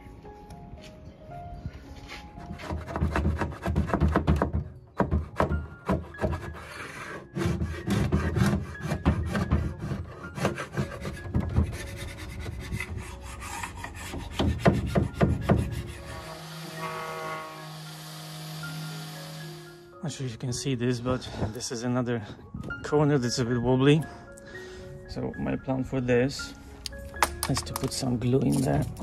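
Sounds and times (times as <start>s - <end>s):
metal edge scraping wood: 2.0s - 17.8s.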